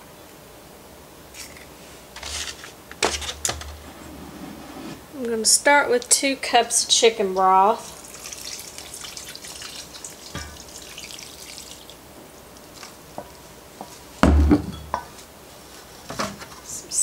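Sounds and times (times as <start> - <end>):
fork stirring wet mixture: 7.4 - 12.0
liquid pouring and splashing: 7.7 - 12.0
loud knock: 14.2 - 14.9.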